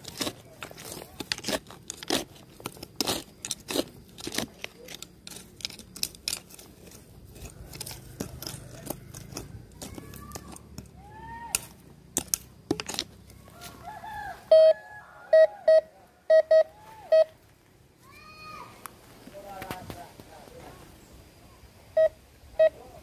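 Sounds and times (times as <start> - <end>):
clicks and scrapes: 0.0 - 13.8
sharp loud beeps: 14.5 - 14.8, 15.4 - 17.3, 22.0 - 22.8
metal detector tones: 14.5 - 17.4.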